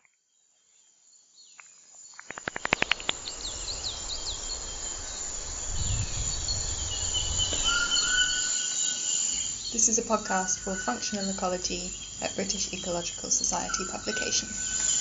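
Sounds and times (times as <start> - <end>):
high insect trill: 1.4 - 15.0
quick run of clicks: 2.2 - 3.3
low hum: 3.0 - 9.9.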